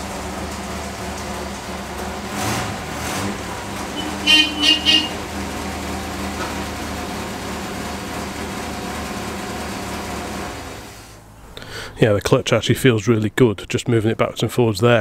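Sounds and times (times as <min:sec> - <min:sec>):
car engine idling: 0:00.0 - 0:11.9
car horn toots: 0:03.9 - 0:05.4.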